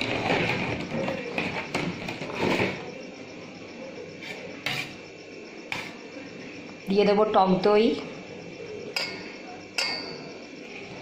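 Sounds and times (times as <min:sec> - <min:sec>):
clicks and knocks on metal bowl: 0:09.0 - 0:10.3.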